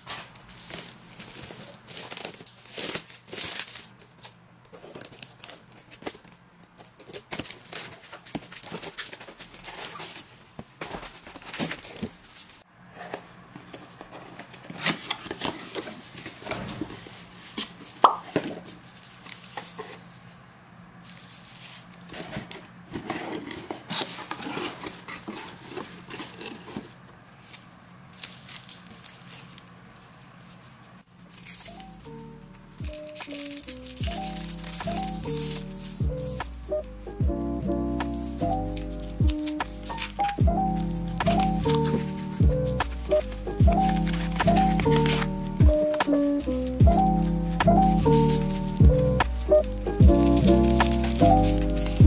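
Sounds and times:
tape tearing: 0:00.0 - 0:10.3, 0:31.3 - 0:36.9, 0:37.9 - 0:52.0
paper wrapping crinkling: 0:00.0 - 0:12.7, 0:13.4 - 0:52.0
plastic bag rustling: 0:00.0 - 0:12.7, 0:13.4 - 0:37.2, 0:37.8 - 0:52.0
cardboard box opening: 0:38.1 - 0:48.8, 0:49.5 - 0:52.0.

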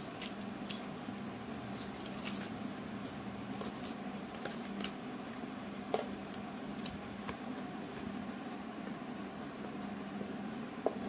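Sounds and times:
steady low hum: 0:00.0 - 0:11.0
paper and cardboard rustling: 0:01.8 - 0:02.5.

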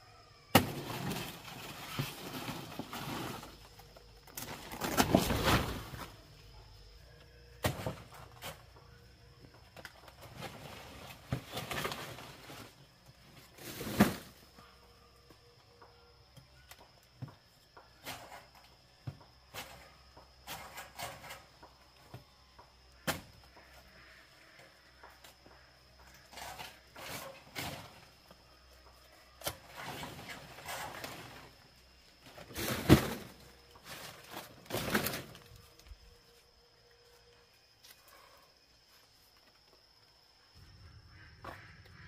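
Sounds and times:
leaves and branches rustling: 0:00.6 - 0:06.6, 0:09.9 - 0:14.6, 0:26.3 - 0:40.2.

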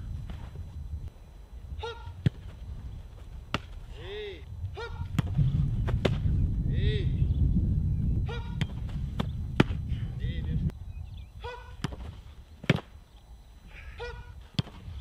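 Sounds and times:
football struck and caught: 0:02.1 - 0:02.6, 0:03.5 - 0:03.8, 0:05.0 - 0:06.3, 0:08.4 - 0:09.8, 0:11.8 - 0:12.9, 0:14.5 - 0:14.8.

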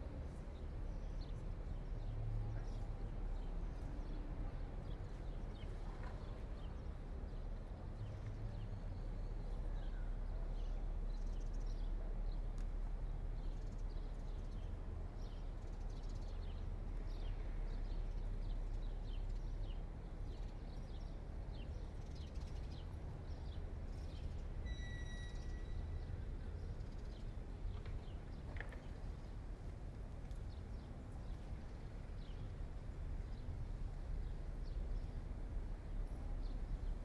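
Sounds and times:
city traffic hum: 0:00.0 - 0:37.0.

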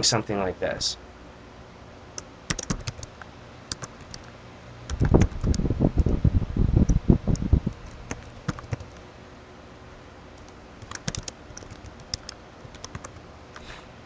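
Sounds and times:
computer keyboard typing: 0:02.2 - 0:04.3, 0:04.9 - 0:06.2, 0:06.9 - 0:09.0, 0:10.4 - 0:13.2.

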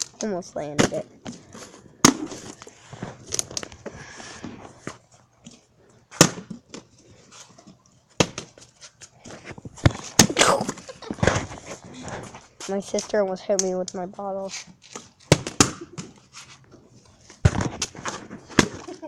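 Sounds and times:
plastic bottle landing on concrete: 0:17.4 - 0:19.0.

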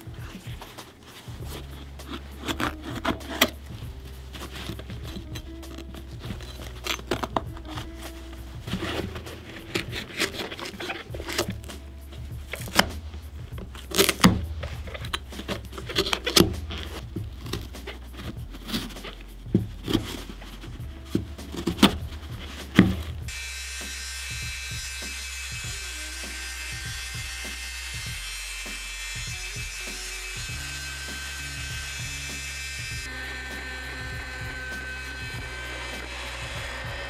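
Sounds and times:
tool knocking and scraping boot: 0:00.0 - 0:23.4.

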